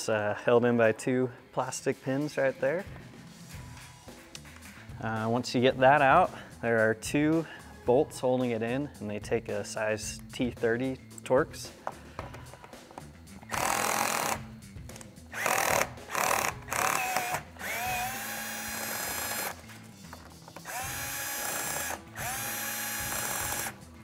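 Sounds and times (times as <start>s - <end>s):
cordless drill whining: 13.5s - 14.5s, 15.3s - 19.6s, 20.6s - 23.8s.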